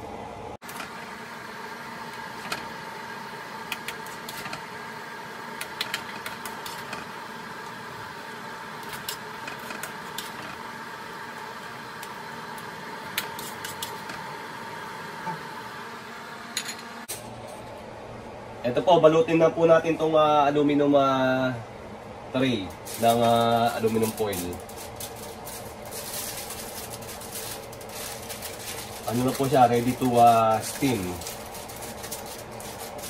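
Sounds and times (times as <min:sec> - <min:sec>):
steady mechanical hum: 0:00.0 - 0:33.0
spoon tapping foil trays: 0:22.7 - 0:33.0.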